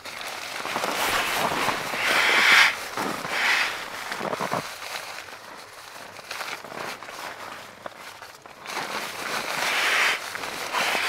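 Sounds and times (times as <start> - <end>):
nylon fabric rustling: 0.0 - 11.0.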